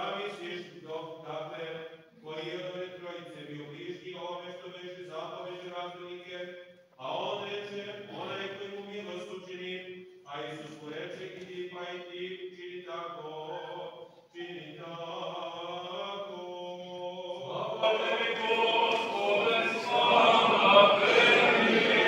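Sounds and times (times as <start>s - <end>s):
man chanting sustained notes: 11.8s - 16.8s
choir of voices singing: 13.3s - 22.0s.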